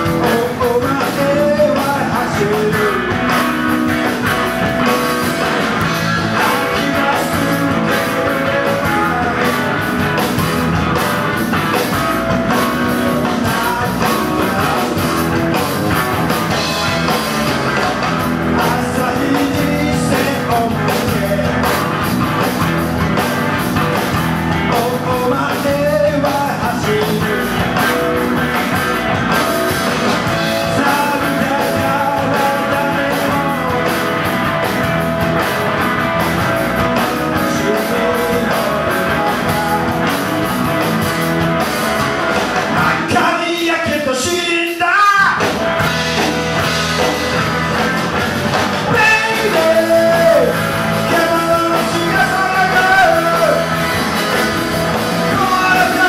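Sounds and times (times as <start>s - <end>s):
man singing: 0.0s - 10.6s, 11.7s - 15.7s, 16.5s - 22.1s, 24.5s - 28.2s, 30.2s - 34.4s, 36.8s - 40.5s, 42.6s - 45.6s, 48.8s - 56.0s
bass guitar: 0.0s - 56.0s
drum kit: 0.0s - 56.0s
electric guitar: 0.0s - 56.0s.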